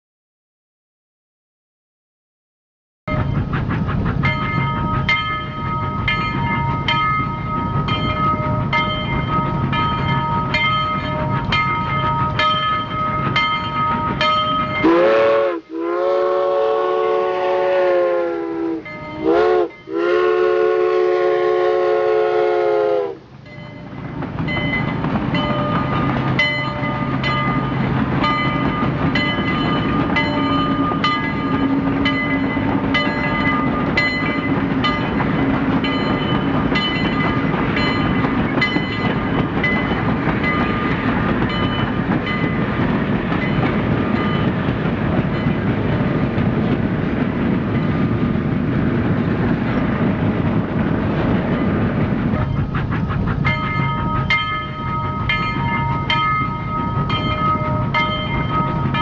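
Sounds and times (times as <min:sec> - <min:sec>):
steam train chugging: 0:03.1 - 0:59.0
steam train whistle: 0:14.2 - 0:23.4.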